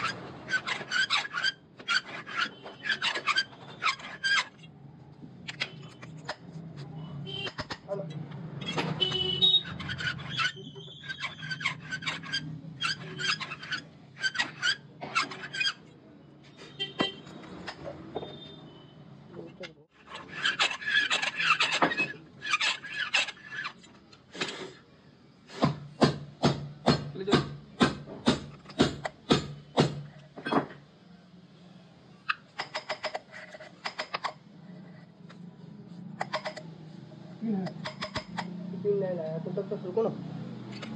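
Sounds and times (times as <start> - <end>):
cutter rasping on metal: 0.0 - 4.6, 9.0 - 15.8, 20.0 - 23.8
sharp metal knocks: 25.6 - 30.8.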